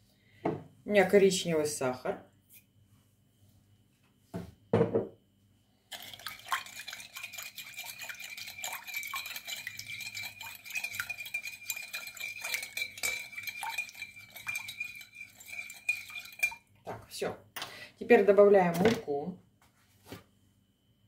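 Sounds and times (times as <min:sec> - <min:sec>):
knock: 0:04.4 - 0:05.1
spoon clinking and scraping bowl: 0:05.9 - 0:17.0.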